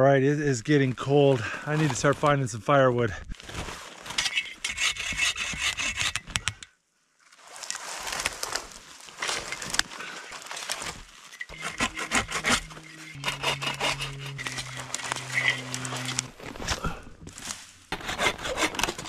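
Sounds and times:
hand saw cutting wood: 4.2s - 6.5s, 11.4s - 16.9s, 17.9s - 19.0s.

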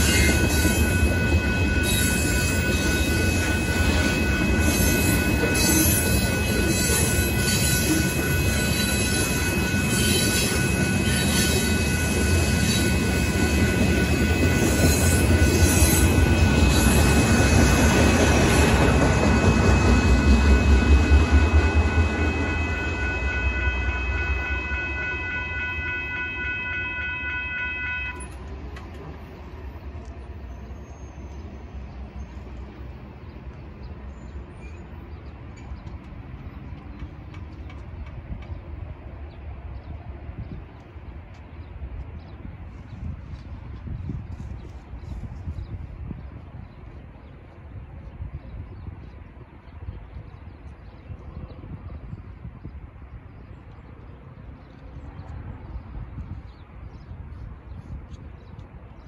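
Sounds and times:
train wheels clickety-clack: 0.0s - 22.1s, 34.5s - 39.0s
crossing bell ringing: 0.0s - 28.6s.

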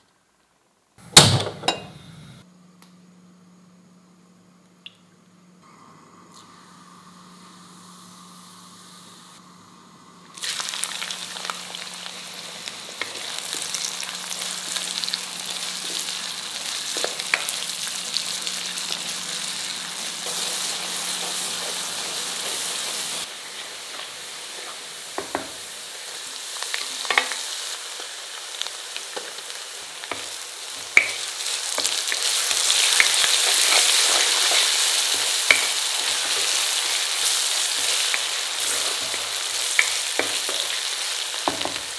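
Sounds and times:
hot oil sizzling: 10.3s - 41.9s.

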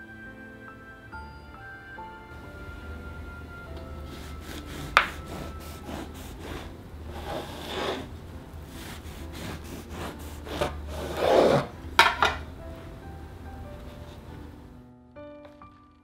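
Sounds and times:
knife sawing through bread: 4.1s - 8.1s, 8.7s - 11.7s.

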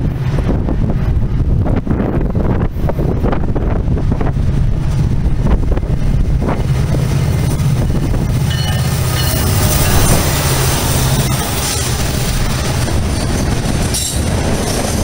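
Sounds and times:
diesel locomotive engine rumble: 0.0s - 15.0s
train wheels squealing: 8.5s - 12.0s, 13.4s - 14.4s.

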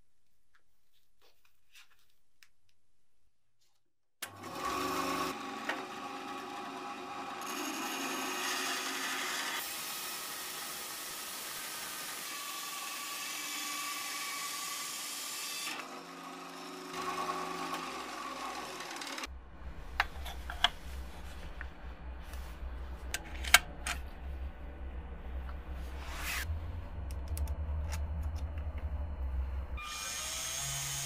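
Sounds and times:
power tool running: 4.2s - 19.3s, 29.8s - 31.0s.

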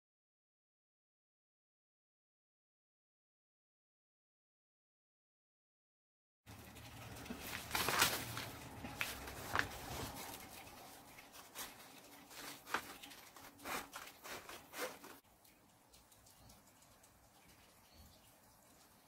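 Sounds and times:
paper rustling: 7.1s - 15.2s.

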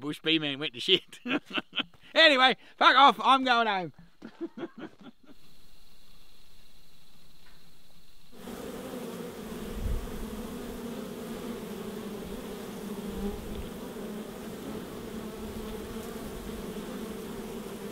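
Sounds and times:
honey bees buzzing: 8.3s - 17.9s.

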